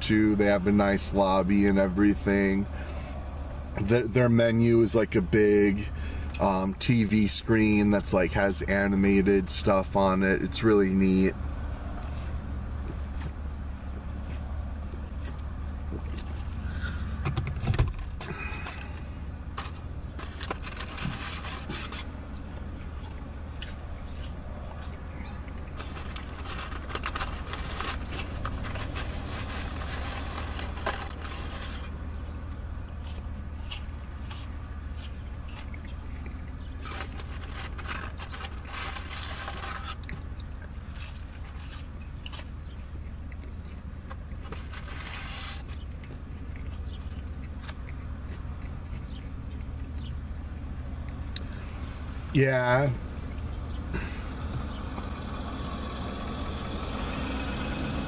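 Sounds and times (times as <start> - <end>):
crackly rustling and chewing: 0.0 - 58.0
low car hum: 0.0 - 58.0.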